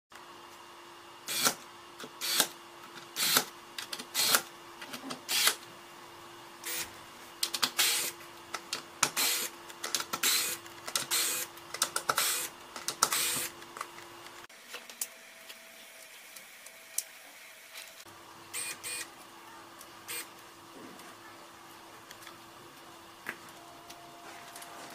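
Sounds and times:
electric screwdriver whirring: 0:01.3 - 0:01.6, 0:02.2 - 0:02.5, 0:03.2 - 0:04.5, 0:05.3 - 0:05.6, 0:06.6 - 0:06.9, 0:07.6 - 0:08.2, 0:09.2 - 0:11.5, 0:12.1 - 0:13.7, 0:18.6 - 0:19.1.

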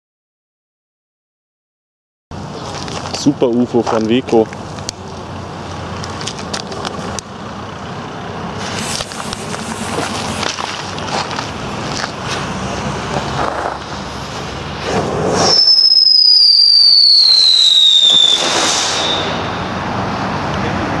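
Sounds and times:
steady rumble: 0:02.3 - 0:16.1
footsteps scuffing on pavement: 0:02.5 - 0:07.0, 0:08.6 - 0:14.1
firework fuse hissing and sputtering: 0:08.6 - 0:19.8.

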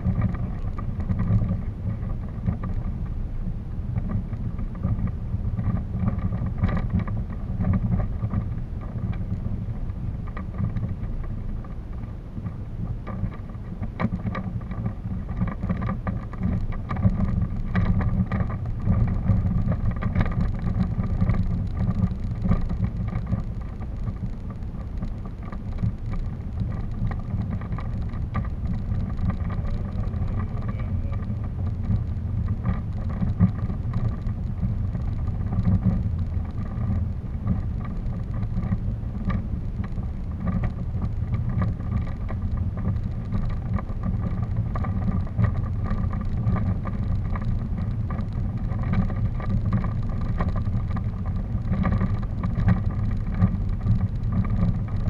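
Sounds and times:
small knocks and rattles: 0:00.0 - 0:03.2, 0:03.9 - 0:55.0
wheels rolling over dirt path: 0:00.0 - 0:55.0.

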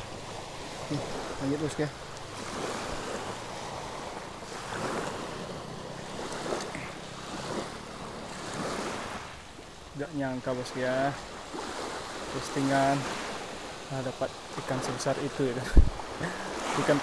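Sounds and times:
small waves breaking on shore: 0:00.0 - 0:17.0
wind buffeting microphone: 0:15.6 - 0:16.2.

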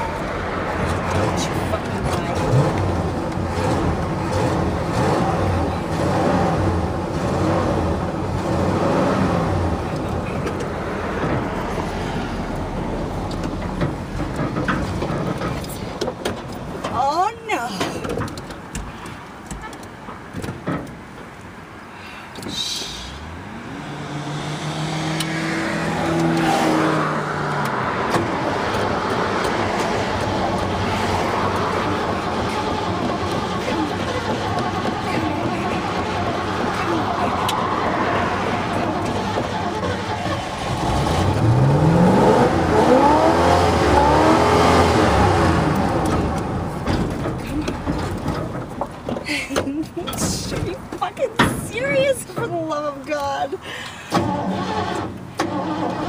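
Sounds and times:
rising hum: 0:23.0 - 0:39.6
engine turning over: 0:23.9 - 0:50.8, 0:53.6 - 0:56.0.

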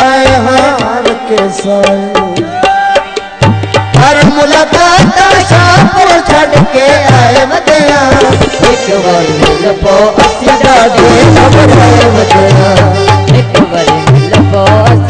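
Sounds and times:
tabla playing fast: 0:00.0 - 0:15.0.

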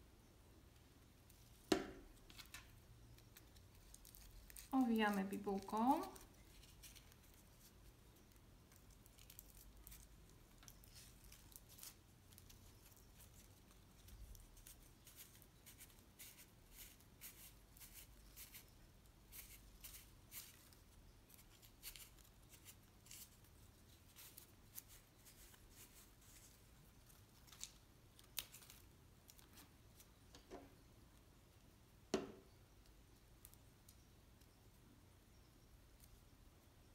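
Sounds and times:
crepe paper crinkling: 0:02.2 - 0:18.7, 0:19.3 - 0:30.2.

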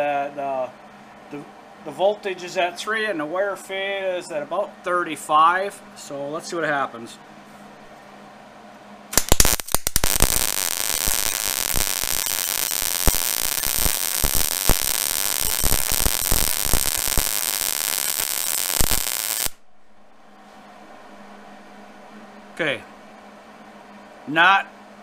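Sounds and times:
welding arc crackling and popping: 0:09.1 - 0:19.6.

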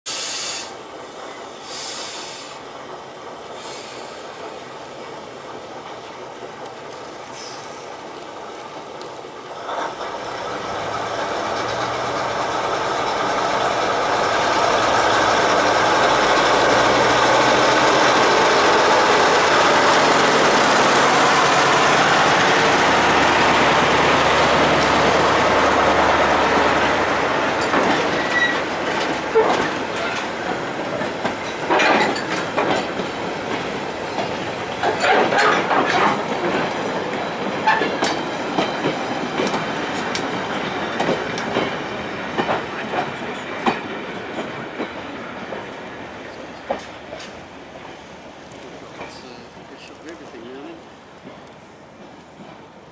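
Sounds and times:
diesel locomotive engine: 0:00.1 - 0:52.9
wagon wheels clanking on rails: 0:09.6 - 0:25.8, 0:26.8 - 0:52.6.

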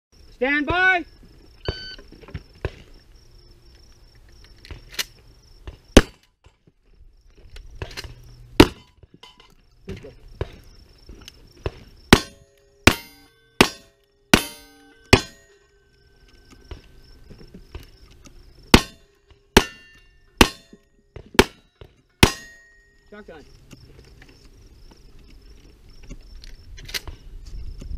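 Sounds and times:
steel plates ringing: 0:12.1 - 0:16.0, 0:18.7 - 0:20.8, 0:21.4 - 0:23.3.

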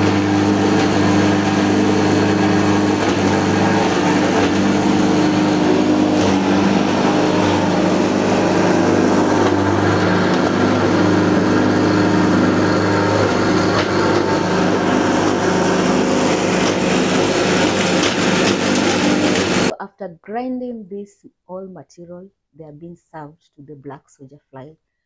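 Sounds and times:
grinding mill grinding: 0:00.0 - 0:19.7
motor hum: 0:00.0 - 0:19.7.

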